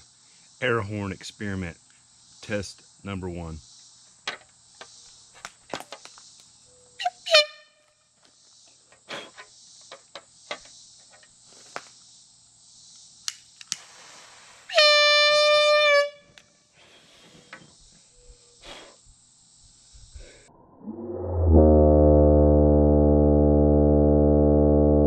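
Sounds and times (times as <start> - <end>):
air horn blasts: 7.0 - 7.8, 14.7 - 16.4, 21.5 - 25.0.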